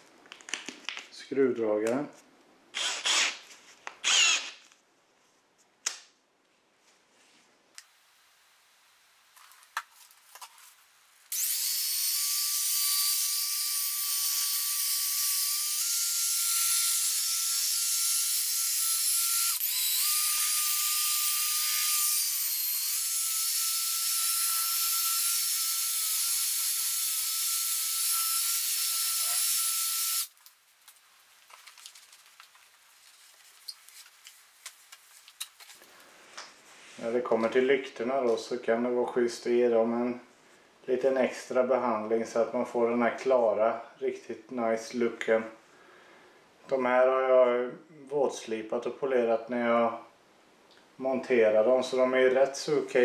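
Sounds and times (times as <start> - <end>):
cordless drill whining: 2.8 - 3.4, 4.0 - 4.6, 11.3 - 30.3.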